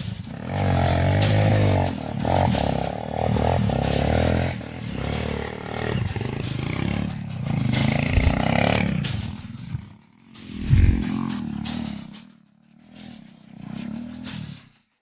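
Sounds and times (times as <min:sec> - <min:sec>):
dirt bike engine revving: 0:00.0 - 0:14.7.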